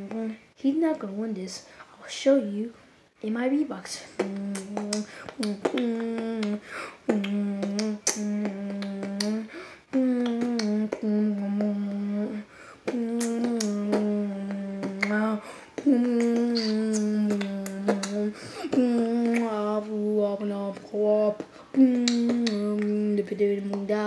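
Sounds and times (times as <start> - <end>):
sharp mouth clicks: 4.1 - 12.1, 12.8 - 19.7, 20.8 - 23.1
beatboxing hummed notes: 4.1 - 24.0.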